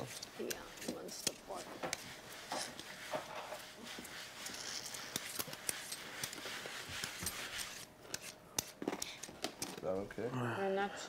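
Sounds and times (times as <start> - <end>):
soft scraping and rustling: 0.0 - 8.4.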